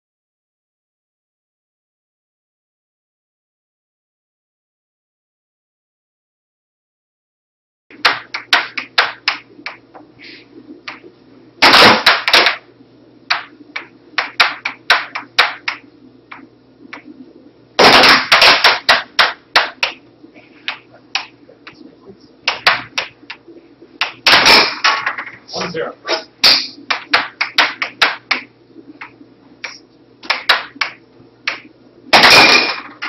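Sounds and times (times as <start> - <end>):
air hockey puck hits: 7.9 - 9.8, 10.9 - 12.7, 13.3 - 16.4, 17.8 - 20.0, 22.5 - 23.4, 24.0 - 25.4, 26.1 - 33.0.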